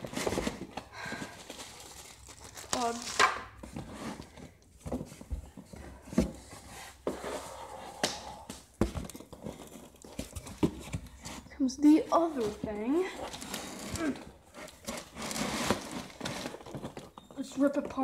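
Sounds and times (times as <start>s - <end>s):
packing material rustling: 0.0s - 4.4s, 12.1s - 17.5s
cardboard box knocks and thumps: 8.8s - 11.4s.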